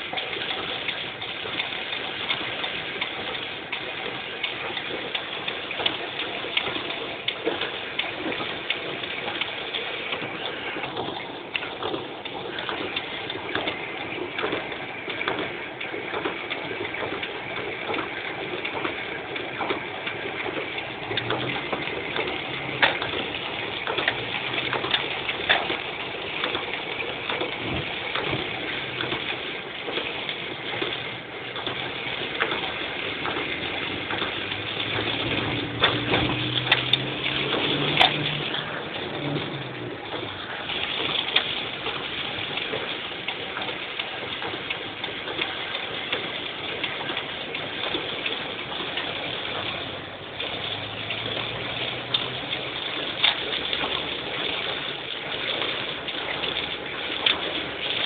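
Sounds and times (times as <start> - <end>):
heavy rain drumming on car roof: 0.0 - 58.0
tyres hissing through water: 0.0 - 58.0
low engine hum: 5.1 - 42.6, 48.4 - 54.8.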